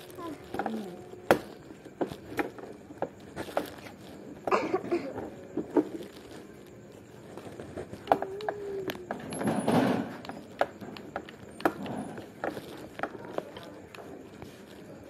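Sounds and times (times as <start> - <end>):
faint voice: 8.1 - 9.3.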